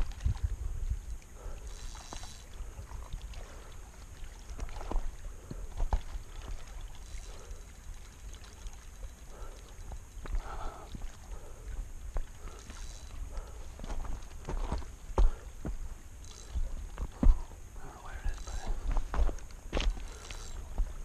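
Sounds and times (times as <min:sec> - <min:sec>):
wind rumbling on microphone: 0:00.0 - 0:21.0
fishing reel clicks and ticks: 0:01.0 - 0:03.8, 0:06.5 - 0:10.8, 0:12.3 - 0:13.6, 0:16.2 - 0:16.7, 0:18.2 - 0:20.7.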